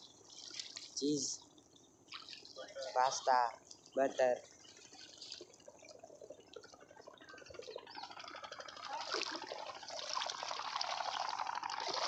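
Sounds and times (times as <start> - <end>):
person wading through river water: 0.0 - 12.0.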